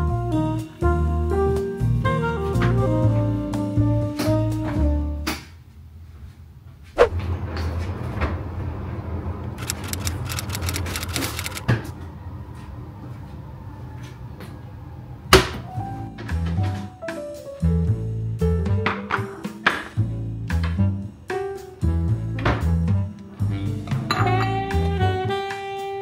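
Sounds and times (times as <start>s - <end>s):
jazz background music: 0.0s - 5.5s, 15.5s - 26.0s
jars and bottles clinking: 23.9s - 24.7s.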